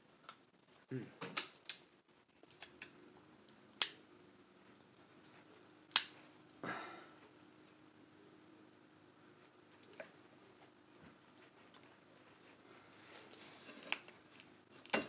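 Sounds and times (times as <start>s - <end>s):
shell cracking loudly: 3.7s - 4.1s, 5.9s - 6.2s.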